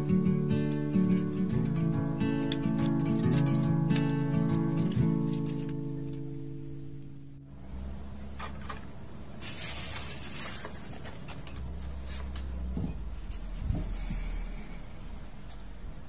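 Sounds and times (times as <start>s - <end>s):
paper rustle: 2.4s - 5.8s, 9.4s - 12.6s.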